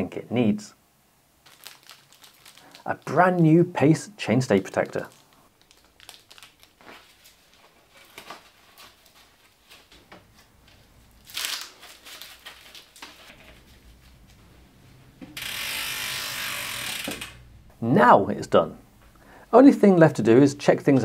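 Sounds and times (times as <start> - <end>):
plastic packaging crinkling: 1.4 - 3.5, 4.6 - 14.4
tearing rip: 11.2 - 12.8, 15.4 - 17.4.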